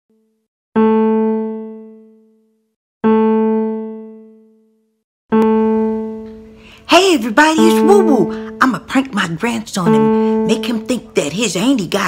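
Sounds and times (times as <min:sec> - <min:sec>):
piano-like keyboard note: 0:00.8 - 0:06.6, 0:07.6 - 0:08.7.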